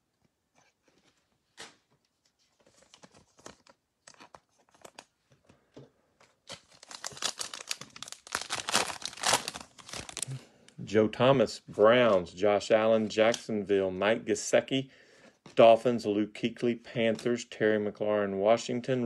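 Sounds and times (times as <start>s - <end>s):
cards rustling: 0.8s - 10.4s
foil card pack crinkling and tearing: 6.4s - 10.4s.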